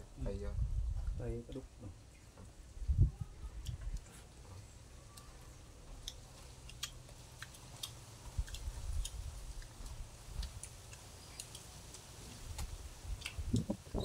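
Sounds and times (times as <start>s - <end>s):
dull low thumps: 0.0s - 1.2s
people chewing: 3.4s - 14.0s.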